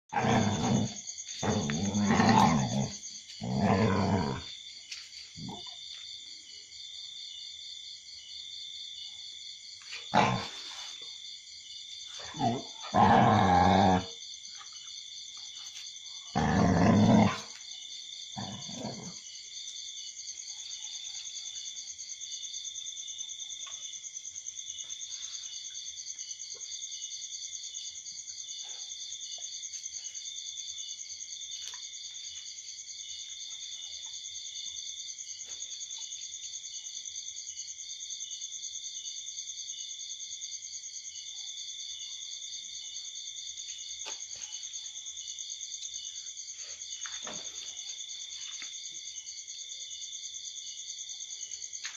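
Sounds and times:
dogs growling: 0.1 - 4.6, 10.0 - 11.0, 12.1 - 14.2, 16.3 - 17.6, 18.3 - 19.3
night insects chorus: 0.1 - 51.9.

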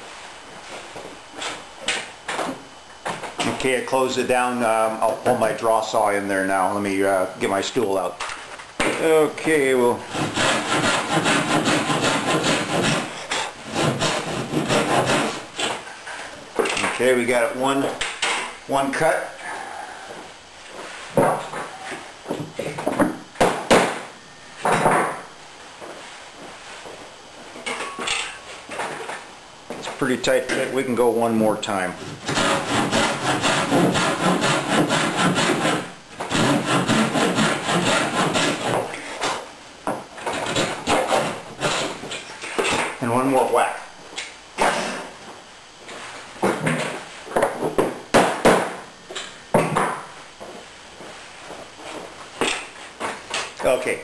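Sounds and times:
pull saw rasping through wood: 10.1 - 13.1, 13.7 - 15.4, 32.3 - 38.8.

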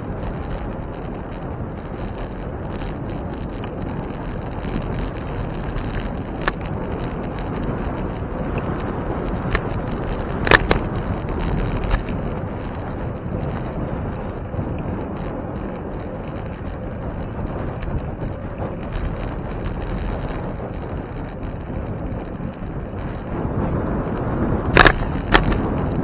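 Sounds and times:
bicycle tyre rumble: 0.0 - 26.0
wind on microphone: 0.0 - 26.0.

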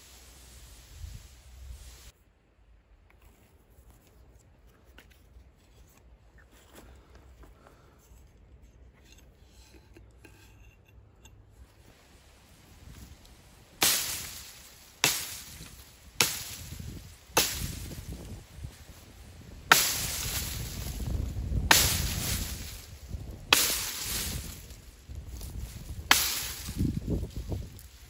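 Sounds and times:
hatchet chopping into ground: 13.8 - 18.3, 19.7 - 22.8, 23.5 - 24.8, 25.4 - 27.9.

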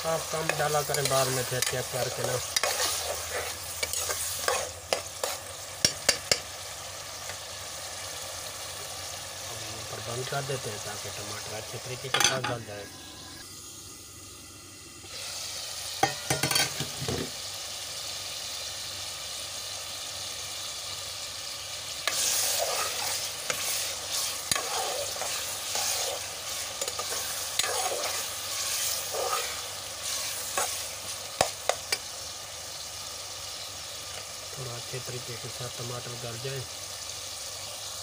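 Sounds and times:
vegetables sizzling in hot oil: 0.0 - 38.0
metal ladle scraping pot: 22.1 - 30.8.

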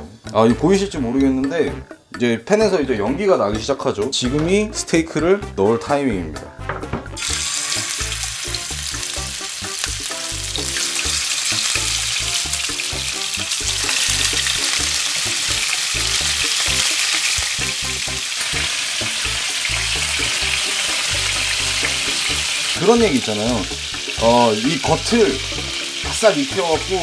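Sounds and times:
steaks sizzling in frying pan: 7.2 - 27.0.

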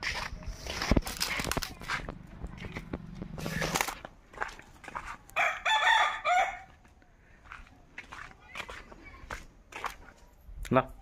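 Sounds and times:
rooster crowing: 5.4 - 6.8.

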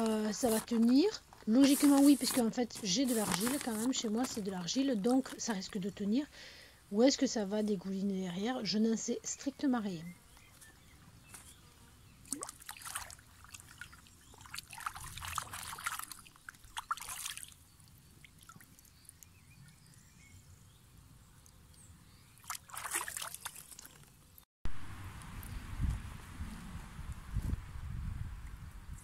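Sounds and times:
pond water sloshing: 12.2 - 19.4, 22.3 - 24.2.

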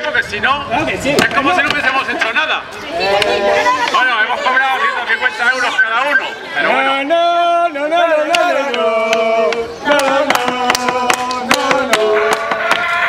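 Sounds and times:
person singing long notes: 6.6 - 13.0.

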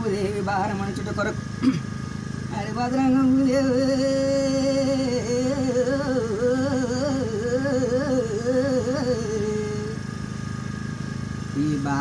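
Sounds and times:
man singing a devotional song: 0.0 - 1.3, 2.5 - 10.0, 11.6 - 12.0
steady low hum: 0.0 - 12.0.

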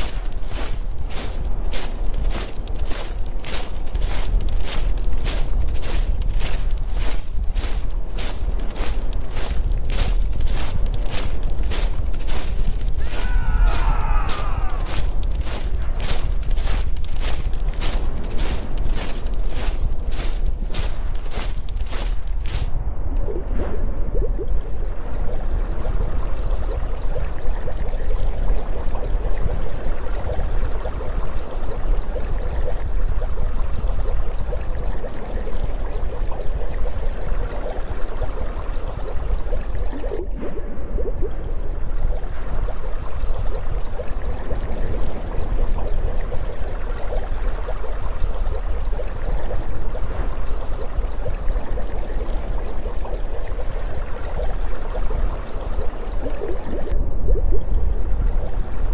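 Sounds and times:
underwater bubbling water: 22.7 - 58.9.

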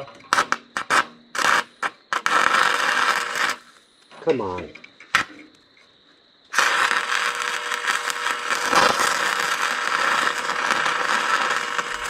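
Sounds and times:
welding arc crackling: 0.2 - 3.9, 6.5 - 12.0.

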